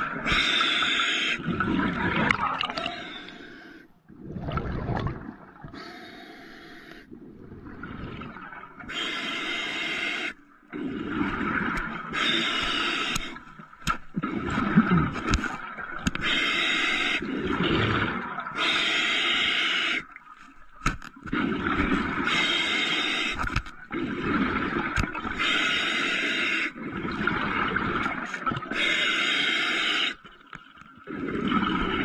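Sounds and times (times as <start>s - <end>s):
bubbling exhale underwater: 1.4s - 3.1s, 4.1s - 5.8s, 7.1s - 8.7s, 17.2s - 18.6s, 21.3s - 22.5s, 31.0s - 32.0s
hissing inhale through regulator: 2.8s - 3.9s, 5.7s - 7.2s, 8.9s - 11.5s, 12.1s - 13.4s, 21.4s - 24.8s, 28.7s - 30.2s.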